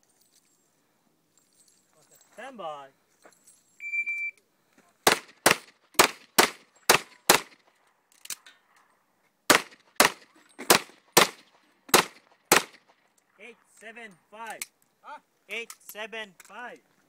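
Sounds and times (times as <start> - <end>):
pistol shots: 5.0 - 7.6, 9.5 - 12.9.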